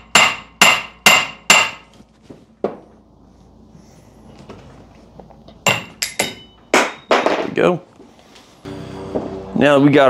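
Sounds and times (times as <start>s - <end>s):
hammer striking metal: 0.0s - 1.9s, 5.6s - 7.4s.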